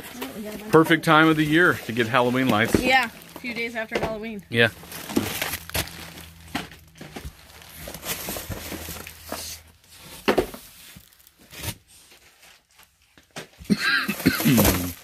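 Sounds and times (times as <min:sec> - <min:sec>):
plastic bags rustling: 0:00.0 - 0:13.5, 0:14.1 - 0:15.0.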